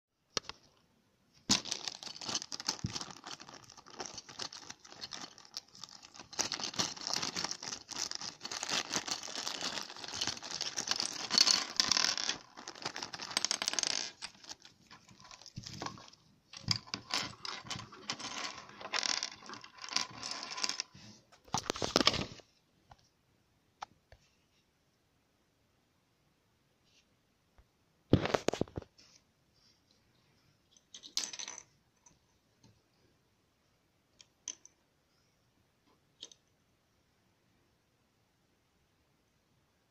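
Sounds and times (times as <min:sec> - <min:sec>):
plastic bag crinkling and tearing: 0:01.5 - 0:16.2.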